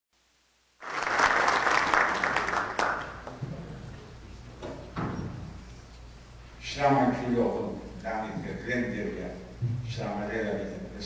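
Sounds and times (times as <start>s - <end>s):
audience applauding: 0.8s - 3.4s.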